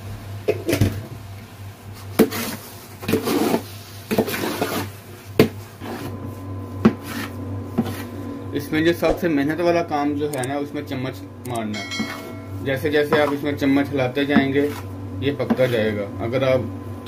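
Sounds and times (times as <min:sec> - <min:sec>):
metal spoon stirring thick mixture: 0:02.4 - 0:05.0, 0:11.8 - 0:15.9
steady low hum: 0:05.7 - 0:17.0
spoon knocking against metal pot: 0:11.7 - 0:12.5.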